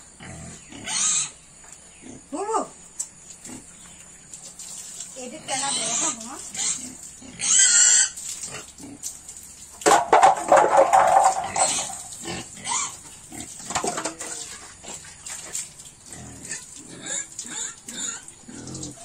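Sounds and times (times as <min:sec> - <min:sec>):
pig grunting: 0:00.2 - 0:01.4, 0:10.8 - 0:15.2, 0:16.1 - 0:19.0
pig squealing: 0:00.2 - 0:01.4, 0:05.4 - 0:09.0, 0:10.6 - 0:13.6, 0:16.1 - 0:19.0.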